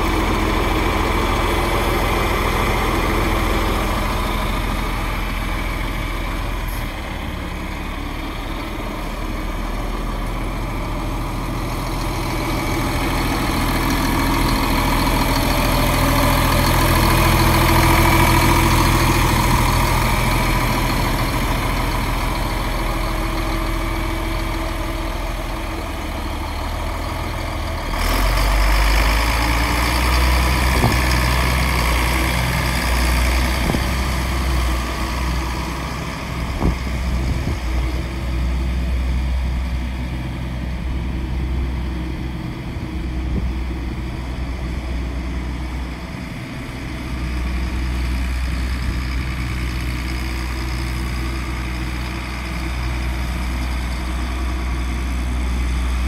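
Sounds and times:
tractor diesel engine idling: 0.0 - 56.0.

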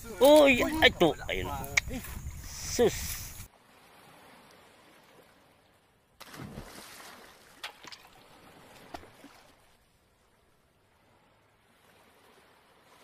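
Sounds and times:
water splash: 6.2 - 9.8.

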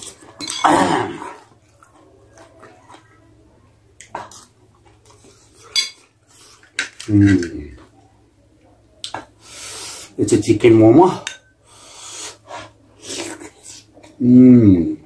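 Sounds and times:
metal spoon clinking on plate: 0.1 - 0.8, 5.7 - 6.0, 11.2 - 11.6
quiet chewing: 1.2 - 9.4
mouth noise: 14.2 - 15.0.

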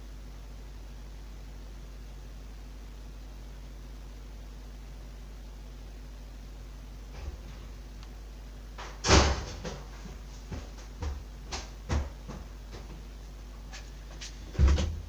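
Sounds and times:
steady low phone line hum: 0.0 - 15.0
knocks and clunks: 14.5 - 15.0.

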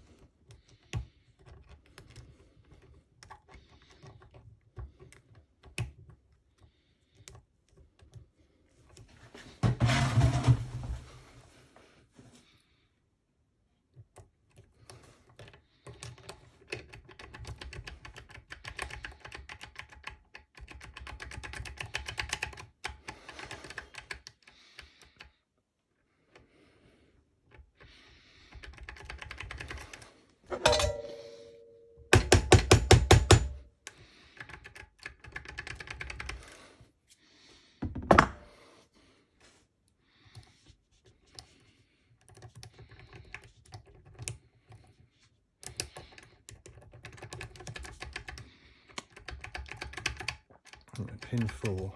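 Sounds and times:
ringing metallic ping: 30.5 - 32.1.

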